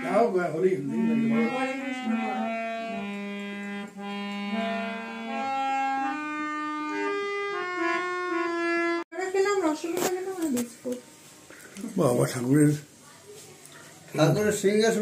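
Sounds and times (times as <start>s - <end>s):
low sustained harmonium note: 0.0s - 9.0s
harmonium slow melody: 0.0s - 9.1s.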